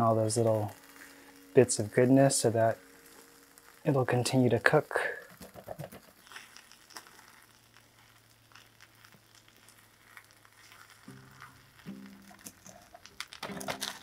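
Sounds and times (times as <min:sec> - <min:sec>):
soft music: 0:00.0 - 0:05.0, 0:11.1 - 0:14.0
batter sizzling in a pan: 0:00.0 - 0:14.0.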